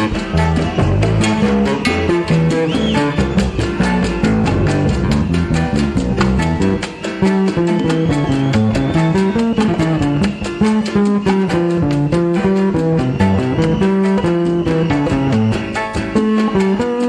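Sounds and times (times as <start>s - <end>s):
salsa band music: 0.0s - 17.0s.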